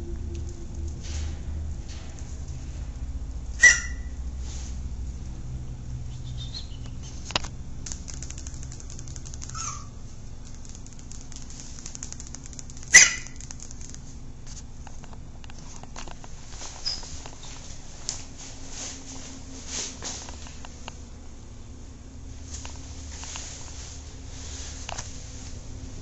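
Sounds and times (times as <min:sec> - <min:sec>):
falling squeak: 0:03.6 - 0:04.2, 0:09.5 - 0:10.0, 0:16.8 - 0:17.1
puppy yapping: 0:03.6 - 0:04.2, 0:09.4 - 0:10.0, 0:12.9 - 0:13.5.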